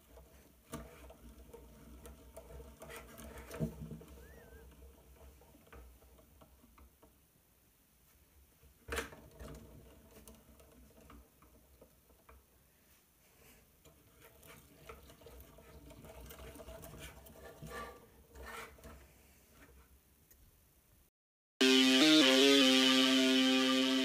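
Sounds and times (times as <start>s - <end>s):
plastic drivetrain clicking and rattling: 8.9s - 12.4s, 13.8s - 19.0s.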